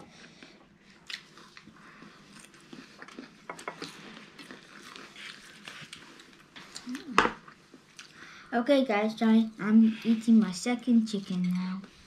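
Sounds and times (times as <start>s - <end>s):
chewing crunchy vegetables: 0.2s - 8.2s.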